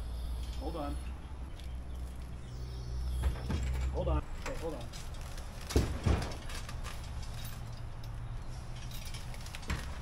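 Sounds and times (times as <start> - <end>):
steady low hum: 0.0 - 6.3.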